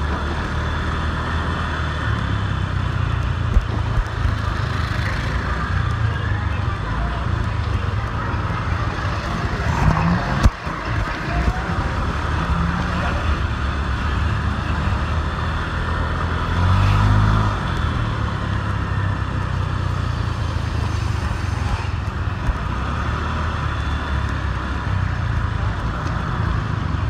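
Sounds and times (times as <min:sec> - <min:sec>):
road noise: 0:00.0 - 0:27.0.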